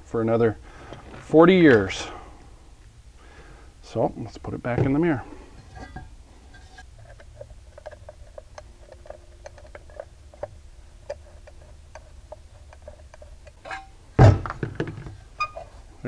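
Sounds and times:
low steady hum: 0.0s - 16.0s
metal parts being handled: 4.8s - 15.9s.

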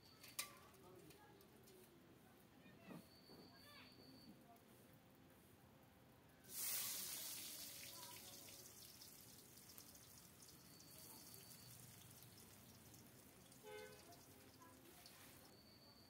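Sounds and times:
garlic sizzling in hot oil: 6.5s - 15.5s.

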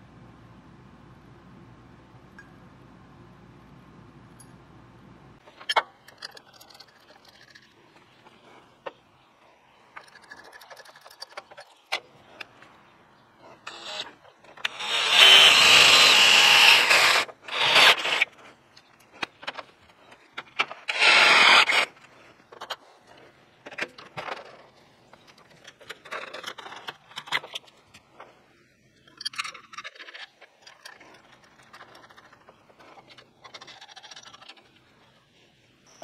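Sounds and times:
tools and parts clicking: 5.4s - 8.1s, 9.9s - 12.6s, 29.0s - 34.9s
cordless drill boring: 13.7s - 18.2s, 20.9s - 21.9s.

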